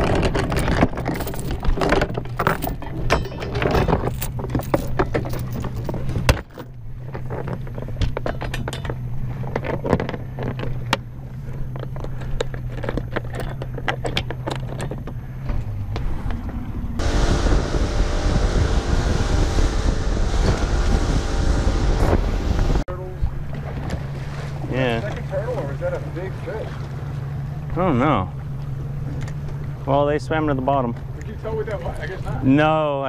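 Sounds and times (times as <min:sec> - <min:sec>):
anchor chain rattling: 0:00.0 - 0:15.4
outboard motor: 0:00.0 - 0:33.0
wind and water rushing: 0:17.0 - 0:27.7.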